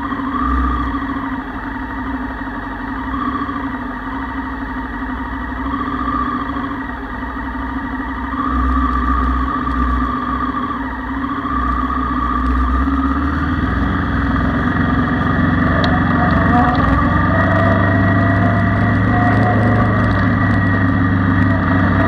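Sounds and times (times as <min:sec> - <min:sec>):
motorcycle engine pulling away: 0:11.6 - 0:22.0.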